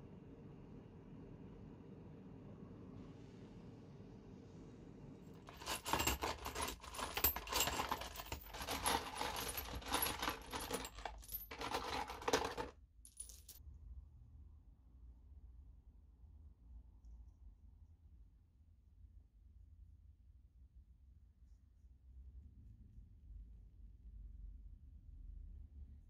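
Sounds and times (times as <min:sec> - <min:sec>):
bolts and nuts clinking and rattling: 0:05.5 - 0:13.6.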